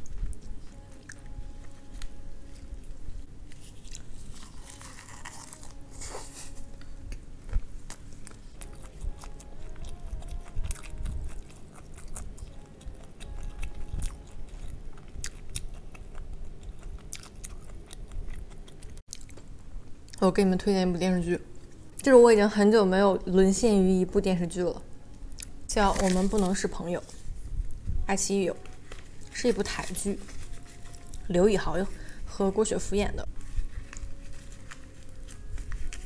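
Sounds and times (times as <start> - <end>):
chewing and crunching food: 0.0 - 20.3, 28.6 - 32.2, 33.2 - 36.0.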